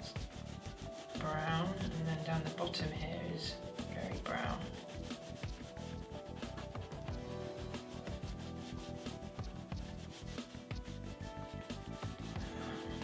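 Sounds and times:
pencil scratching on paper: 0:00.0 - 0:13.0.

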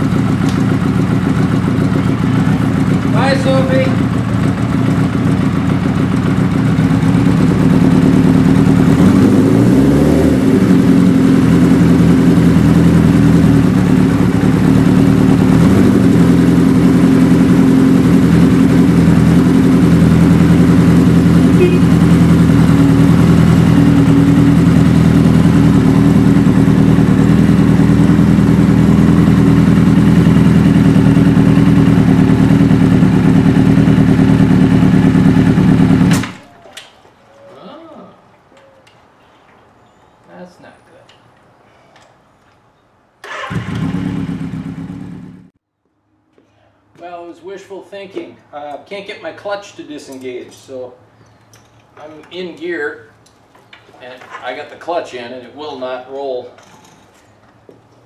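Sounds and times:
motorcycle engine idling: 0:00.0 - 0:36.5, 0:43.3 - 0:45.5.

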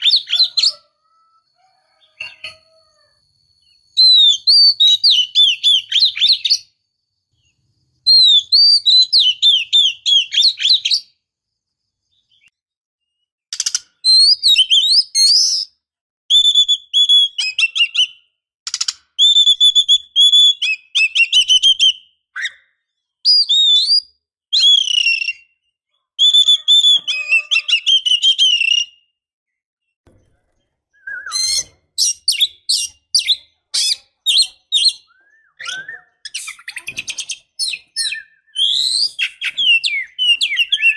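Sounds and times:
bird singing whistles and chirps: 0:00.0 - 0:02.6, 0:03.5 - 0:06.8, 0:07.4 - 0:11.2, 0:14.0 - 0:18.4, 0:19.2 - 0:29.2, 0:30.9 - 0:40.9.

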